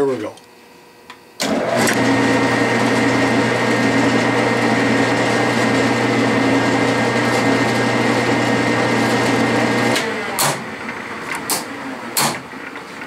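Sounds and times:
metal lathe humming and whining: 1.4 - 10.4.

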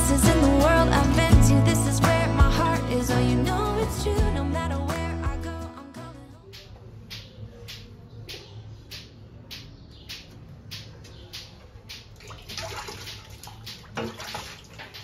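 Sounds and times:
water splashing in steel sink: 11.9 - 15.0.

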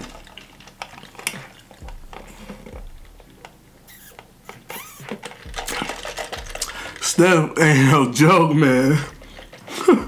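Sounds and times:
sipping through a straw: 3.9 - 7.0.

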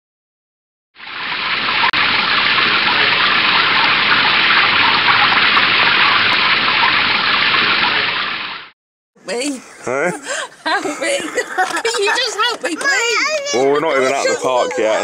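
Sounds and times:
heavy rain hissing: 1.2 - 8.7.

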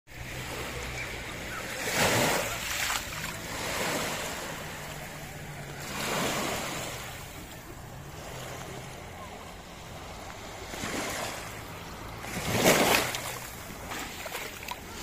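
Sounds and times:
sea waves washing over pebbles: 1.7 - 7.4, 10.1 - 15.0.

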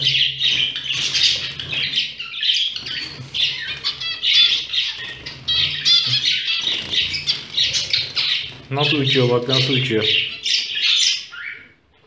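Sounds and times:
wings fluttering: 0.0 - 11.2
cage birds chirping: 0.0 - 12.0.

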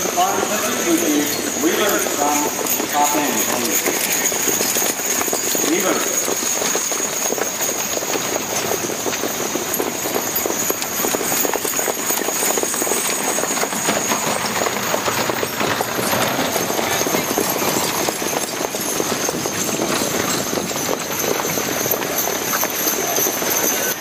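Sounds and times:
horses trotting on dirt: 0.0 - 24.0.

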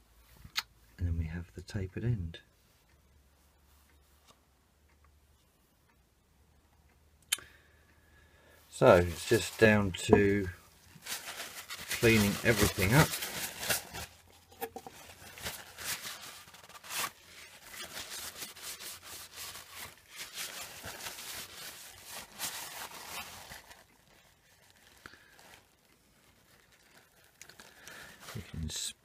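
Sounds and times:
paper towel crinkling and rubbing: 8.7 - 28.8.

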